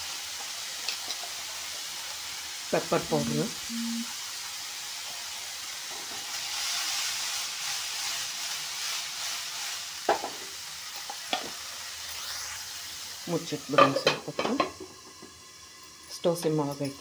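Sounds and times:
cauliflower sizzling in oil: 0:00.0 - 0:17.0.

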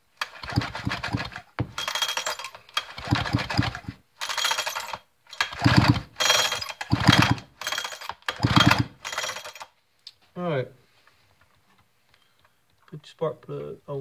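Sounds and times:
engine turning over chugging: 0:00.2 - 0:09.7
recoil starter rope pulls: 0:00.2 - 0:09.7
starter rattle: 0:00.2 - 0:09.7.

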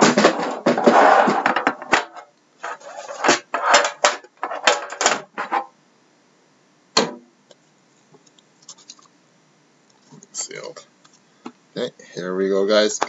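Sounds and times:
tin sliding out of cardboard box: 0:00.0 - 0:05.7
sharp knock: 0:07.0 - 0:07.3.

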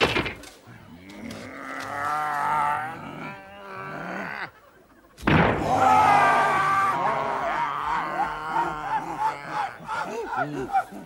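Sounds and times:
men grunting and groaning: 0:01.1 - 0:04.5, 0:05.6 - 0:11.0.

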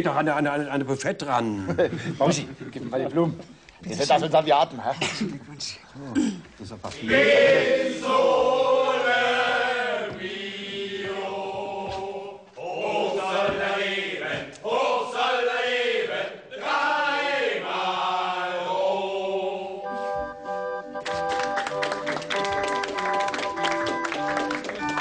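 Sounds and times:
group of voices singing: 0:07.0 - 0:20.3
instrumental music with held notes: 0:19.6 - 0:25.0.

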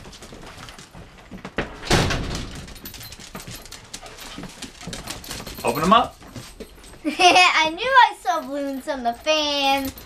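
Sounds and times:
door shutting with thud: 0:01.6 - 0:02.7.

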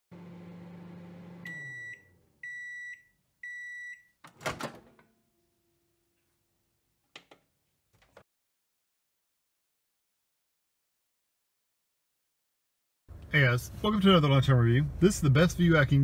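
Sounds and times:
microwave oven humming: 0:00.1 - 0:02.8
microwave beeps: 0:01.2 - 0:04.2.

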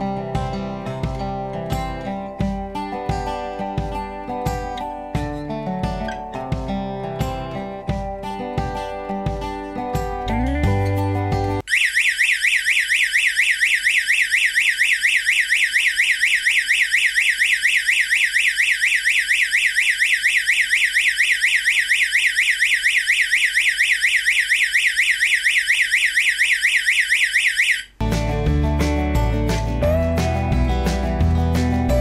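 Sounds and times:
security alarm siren warbling: 0:11.6 - 0:28.0.

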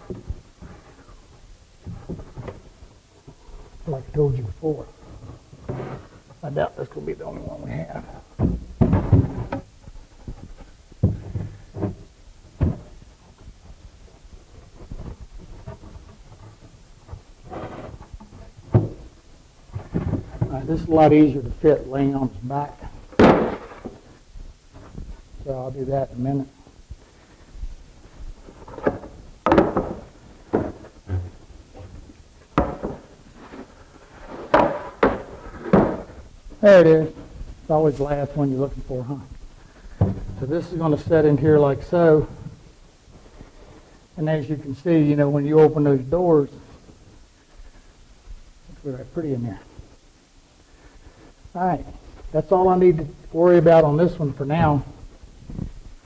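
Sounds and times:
wooden thumps and knocks: 0:00.0 - 0:06.4, 0:07.2 - 0:25.3, 0:27.0 - 0:42.6
sharp wooden knocks: 0:08.4 - 0:12.0, 0:23.1 - 0:24.0, 0:28.7 - 0:31.9, 0:32.6 - 0:33.6, 0:34.4 - 0:36.2.

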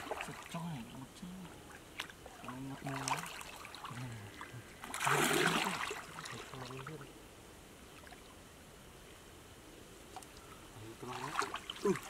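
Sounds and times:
muddy water splashing: 0:00.0 - 0:07.1, 0:10.1 - 0:12.0.

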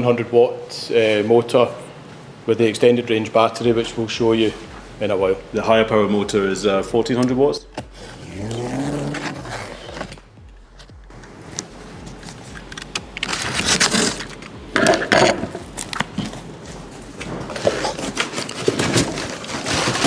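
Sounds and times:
cardboard flaps scraping: 0:08.2 - 0:14.5, 0:15.2 - 0:20.0
packing tape cut and torn: 0:11.5 - 0:14.5, 0:15.2 - 0:16.5, 0:17.2 - 0:20.0.

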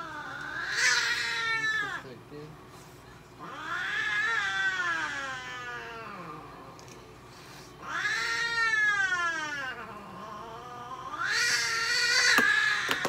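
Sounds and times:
cat yowling: 0:00.0 - 0:02.0, 0:03.4 - 0:06.5, 0:07.8 - 0:13.0.

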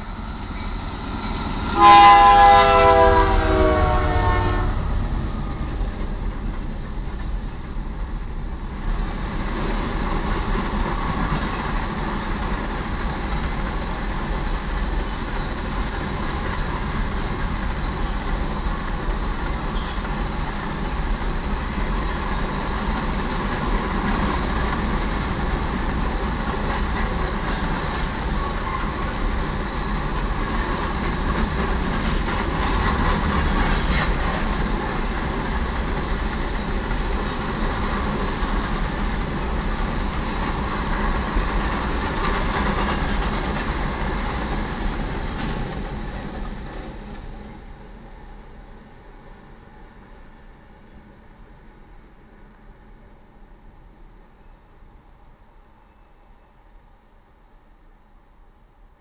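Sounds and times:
freight train wheels rumbling on rails: 0:00.0 - 0:58.4.

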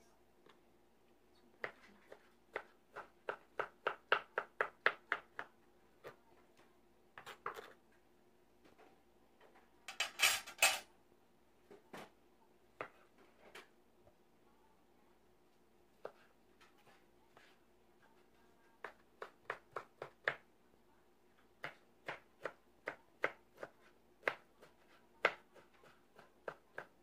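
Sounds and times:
knife chopping on plastic board: 0:01.6 - 0:06.2, 0:18.8 - 0:20.5, 0:21.6 - 0:27.0.

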